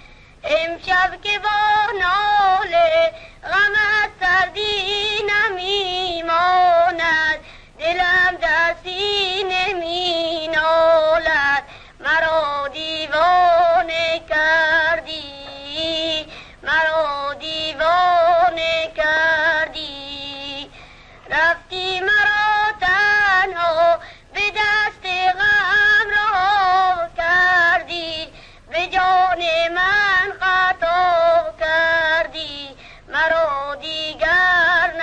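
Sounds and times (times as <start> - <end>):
high voice singing slowly: 21.3 - 35.0.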